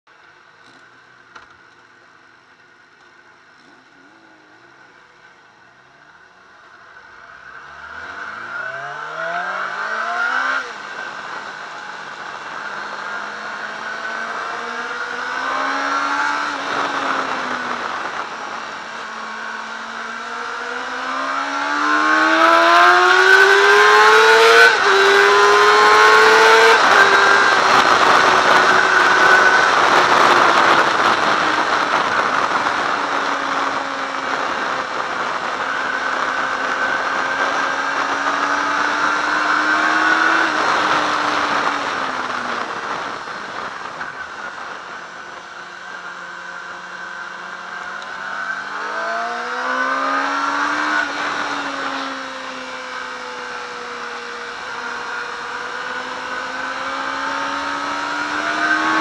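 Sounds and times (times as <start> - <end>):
motorcycle engine accelerating: 0.2 - 59.0
wind rush: 22.1 - 45.6.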